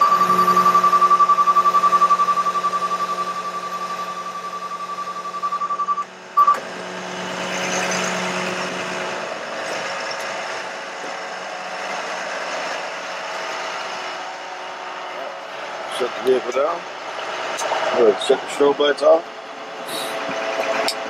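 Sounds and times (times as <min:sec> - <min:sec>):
truck warning beeper: 0:00.0 - 0:06.7
truck mechanical noise: 0:00.0 - 0:21.0.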